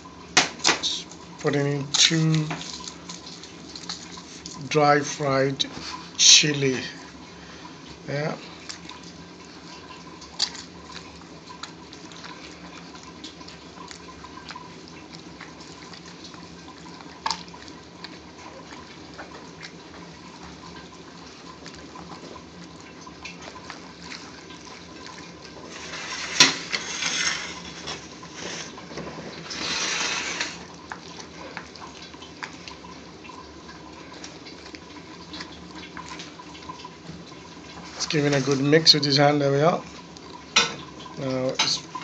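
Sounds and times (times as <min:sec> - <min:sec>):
faint steady hum: 0:00.0 - 0:42.0
wet squishing of food: 0:00.1 - 0:42.0.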